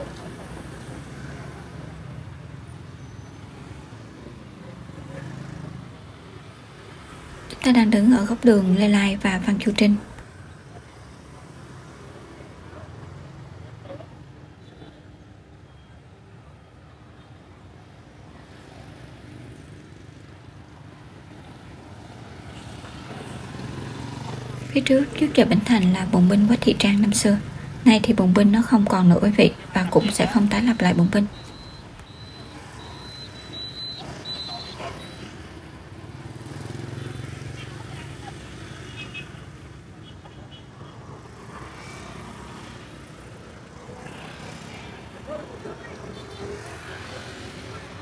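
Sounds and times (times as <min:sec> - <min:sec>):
street traffic rumble: 0:00.0 - 0:48.0
drone of passing vehicles: 0:16.5 - 0:48.0.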